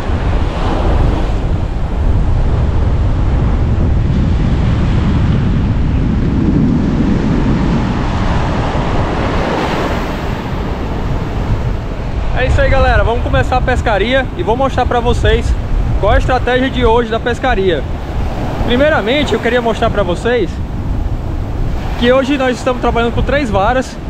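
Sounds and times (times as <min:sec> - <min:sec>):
surf breaking on beach: 0:00.0 - 0:24.0
wind buffeting microphone: 0:00.0 - 0:24.0.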